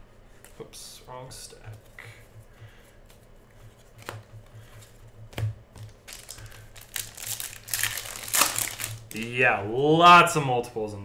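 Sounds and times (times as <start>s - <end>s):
foil wrapper crinkling: 5.8s - 9.3s.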